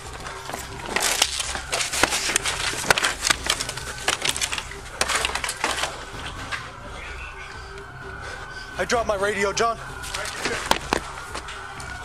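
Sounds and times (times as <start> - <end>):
rattling gear: 0.0 - 6.4.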